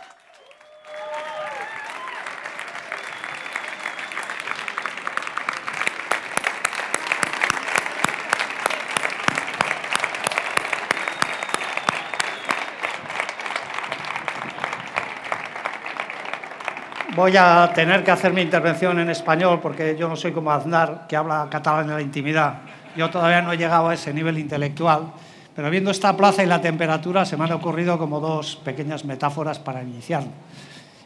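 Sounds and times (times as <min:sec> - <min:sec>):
crowd applauding: 0:00.0 - 0:24.4.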